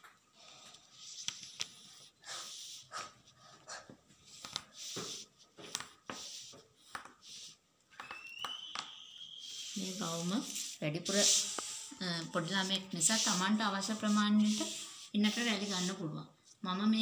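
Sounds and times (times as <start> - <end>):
pencil scratching along a ruler: 4.2 - 7.6, 9.4 - 16.1.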